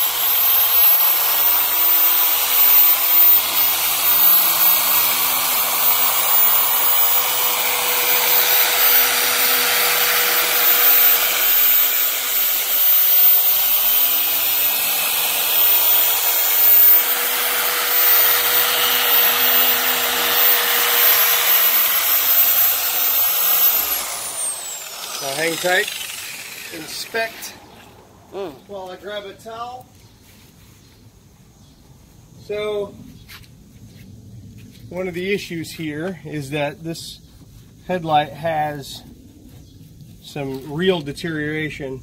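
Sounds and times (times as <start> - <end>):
electric polisher whine: 0.0 - 28.6.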